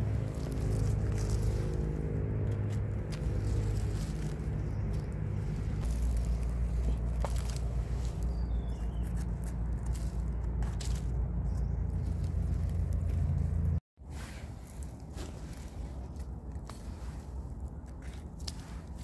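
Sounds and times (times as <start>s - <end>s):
low rumble: 0.0s - 13.8s
dry leaves rustling and crackling: 0.0s - 19.0s.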